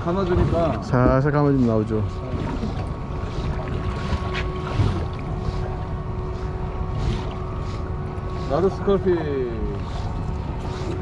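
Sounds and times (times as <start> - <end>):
boat engine hum: 0.0 - 11.0.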